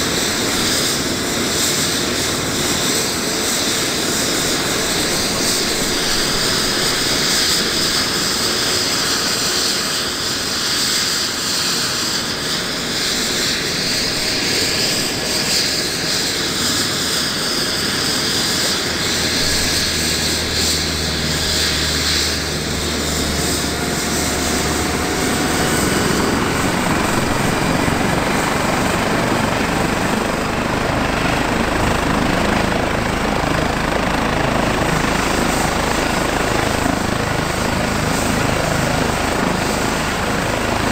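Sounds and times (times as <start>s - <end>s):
helicopter rotor noise: 0.0s - 40.9s
helicopter turbine whine: 0.0s - 40.9s.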